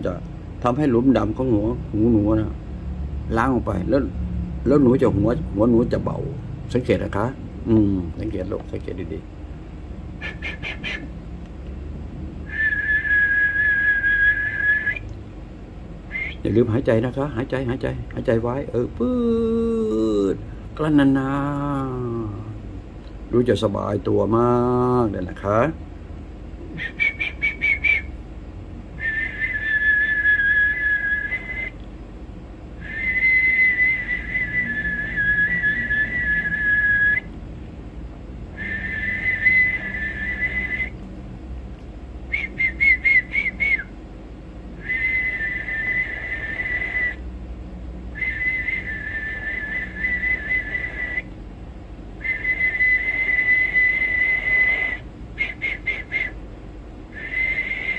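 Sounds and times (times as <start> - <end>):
man whistling: 10.2 - 11.1, 12.4 - 15.2, 16.1 - 16.6, 26.7 - 28.2, 28.9 - 31.8, 32.8 - 37.3, 38.6 - 41.0, 42.3 - 44.0, 44.8 - 47.3, 48.1 - 51.3, 52.2 - 56.4, 57.1 - 57.9.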